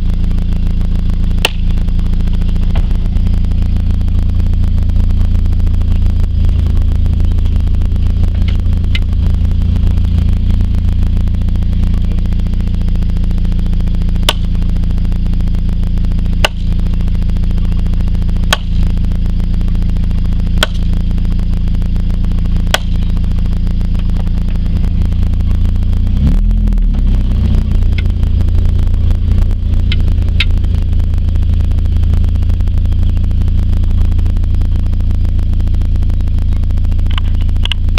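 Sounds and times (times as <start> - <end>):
vehicle engine droning: 0.0 - 37.9
post being pounded: 1.4 - 1.8, 14.2 - 14.6, 16.4 - 16.7, 18.5 - 18.8, 20.6 - 20.9, 22.7 - 23.1.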